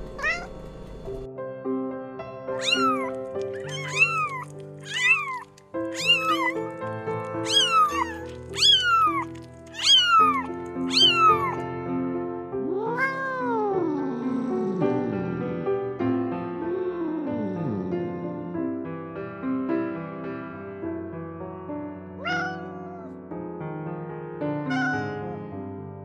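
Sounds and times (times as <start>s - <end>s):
kittens meowing: 0.0s - 1.2s, 2.6s - 11.6s, 12.8s - 13.6s, 22.2s - 23.2s, 24.7s - 25.4s.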